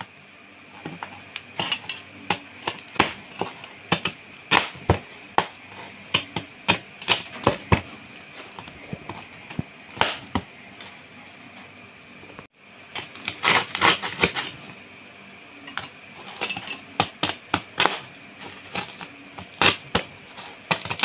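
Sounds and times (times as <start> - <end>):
cleaver chopping on plastic board: 2.3 - 8.0, 8.6 - 10.5, 17.0 - 21.0.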